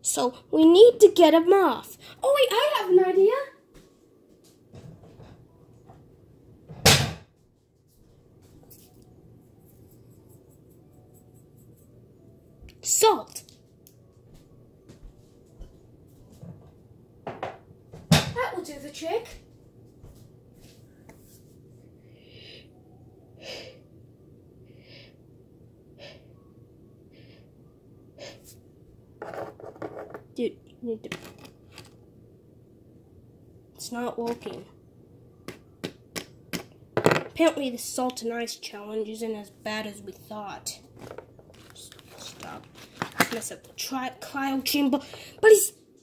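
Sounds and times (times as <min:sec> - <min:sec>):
low room hum: 0:00.0 - 0:46.0
soft breaths: 0:20.6 - 0:23.9, 0:45.0 - 0:45.4.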